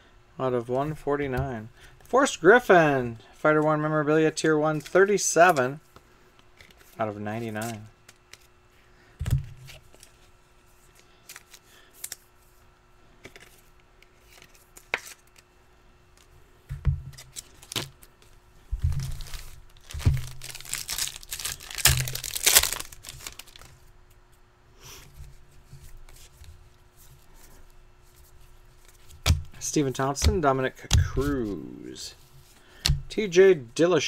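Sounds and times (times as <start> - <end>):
packaging tearing and crinkling: 17.1 - 18.1, 18.9 - 23.8.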